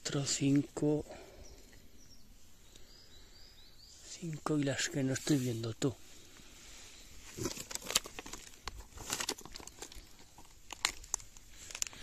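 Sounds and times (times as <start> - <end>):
rustling on forest floor: 0.1 - 12.0
twigs snapping: 7.3 - 12.0.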